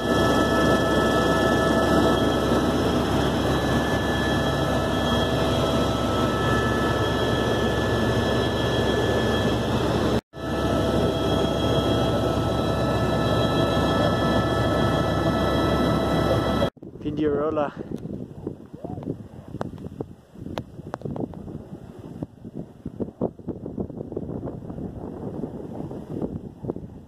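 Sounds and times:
whining tones: 0:00.0 - 0:16.7
helicopter engine and rotor drone: 0:00.0 - 0:16.8.

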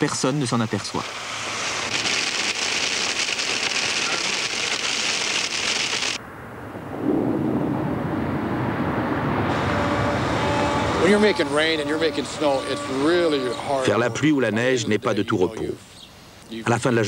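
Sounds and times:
heavy rain hissing: 0:00.0 - 0:06.2
thunder rumble: 0:06.2 - 0:12.1.

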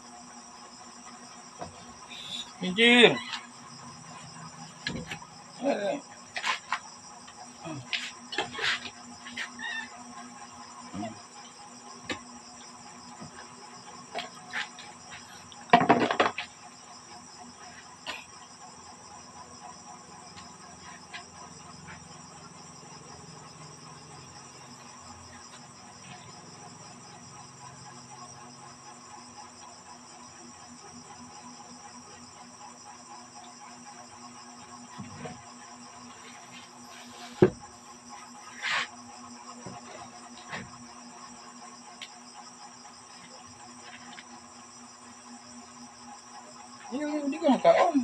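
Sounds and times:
crickets trilling: 0:00.0 - 0:48.0.

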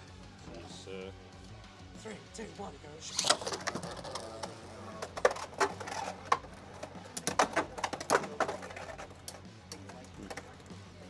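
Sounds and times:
spinning tops clacking: 0:03.1 - 0:10.6.

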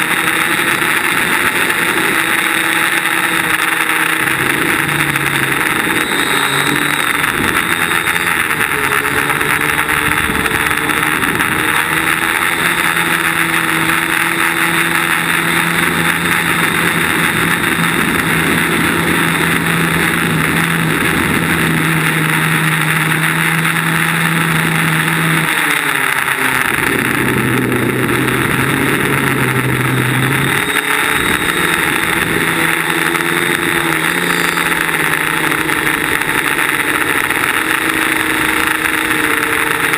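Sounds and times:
drone motors buzzing: 0:00.0 - 0:39.9.

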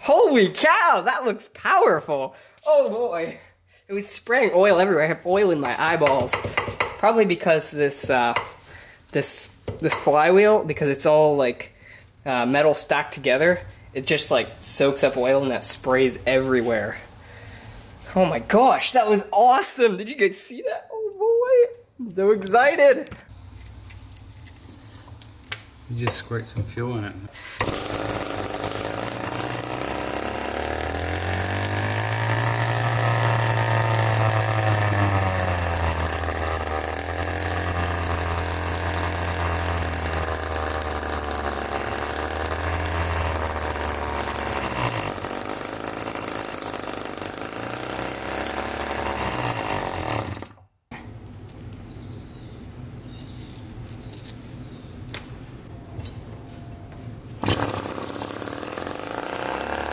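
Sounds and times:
background noise: 0:00.0 - 0:47.3, 0:48.2 - 0:59.9
small two-stroke engine running: 0:27.6 - 0:50.6, 0:57.4 - 0:59.9.

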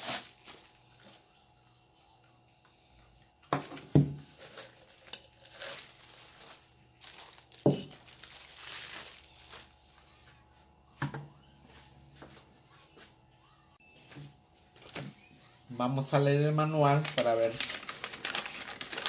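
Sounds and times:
plastic wrap crinkling: 0:00.0 - 0:01.2, 0:03.6 - 0:09.8, 0:16.6 - 0:19.0.

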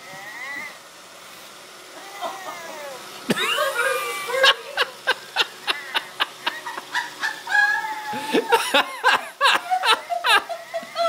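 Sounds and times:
rhythmic laughter: 0:03.3 - 0:11.0.

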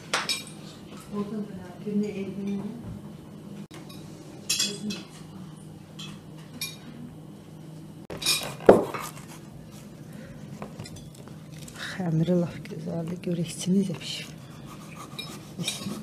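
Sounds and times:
cutlery clinking on plates: 0:03.8 - 0:05.2.

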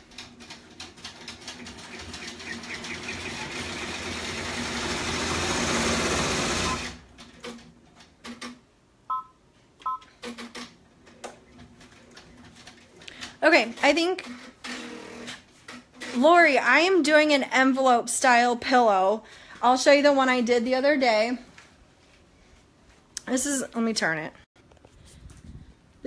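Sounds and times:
short electronic beeps: 0:09.1 - 0:10.1.

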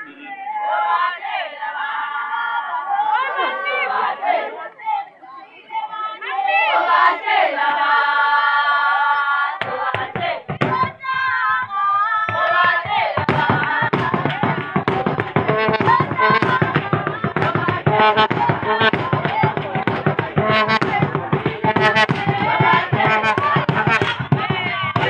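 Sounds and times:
long high held cry: 0:00.0 - 0:05.2
women singing in chorus: 0:00.0 - 0:25.0
hand clapping: 0:09.6 - 0:25.0.

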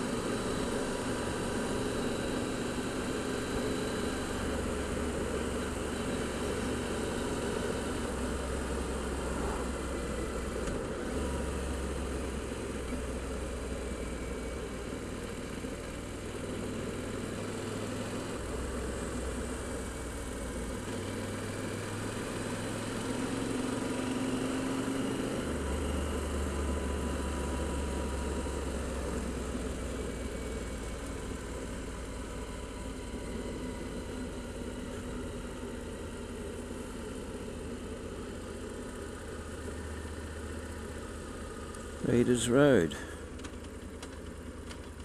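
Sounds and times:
motorcycle engine drone: 0:00.0 - 0:45.0
wind and road noise: 0:00.0 - 0:45.0.

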